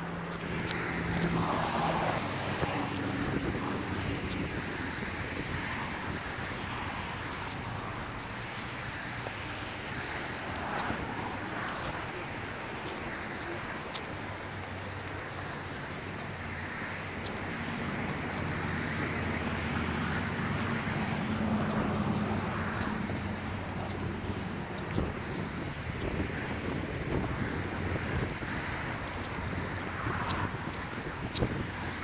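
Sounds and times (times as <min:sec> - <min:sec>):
wind on microphone: 0:00.0 - 0:08.8, 0:20.6 - 0:32.0
low vehicle hum: 0:00.0 - 0:32.0.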